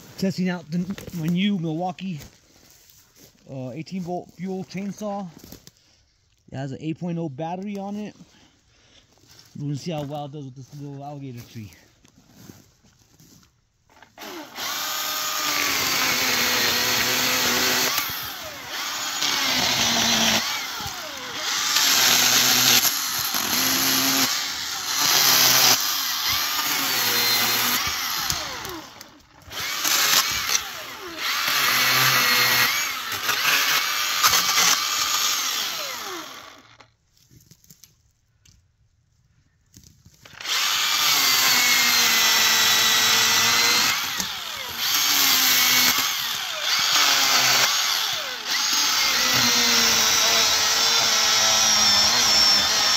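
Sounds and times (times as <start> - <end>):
electric chainsaw cutting wood: 13.9 - 36.9, 40.2 - 52.9.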